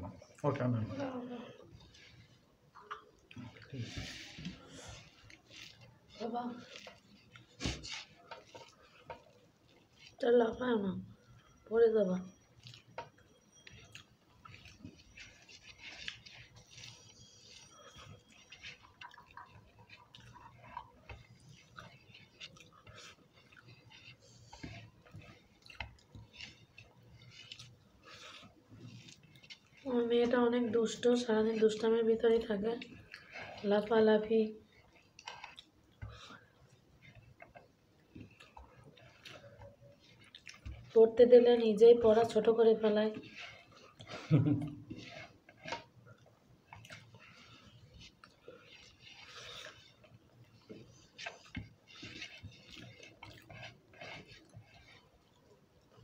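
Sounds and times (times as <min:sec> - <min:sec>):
fingers squishing rice: 0:00.6 - 0:11.6, 0:12.2 - 0:56.0
chewing and lip smacks: 0:04.9 - 0:10.2, 0:12.3 - 0:29.9, 0:32.8 - 0:33.6, 0:34.6 - 0:41.0, 0:43.1 - 0:56.0.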